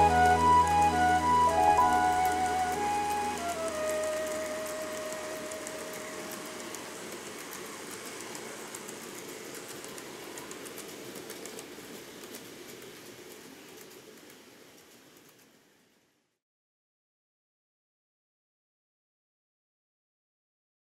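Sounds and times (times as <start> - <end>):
model train rolling with clicks: 1.8 - 16.0.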